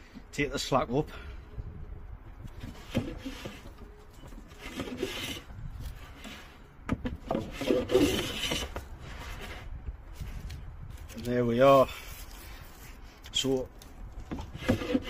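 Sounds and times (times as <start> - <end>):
hand plane scraping wood: 2.6 - 3.8, 4.5 - 6.6, 7.3 - 9.7, 14.3 - 15.0.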